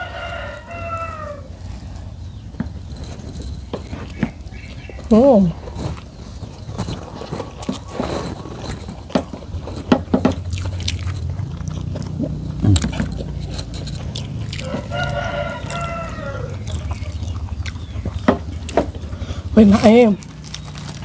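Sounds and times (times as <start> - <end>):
rooster crowing: 0.0 - 1.6, 14.5 - 17.3
people eating from plates: 0.0 - 21.0.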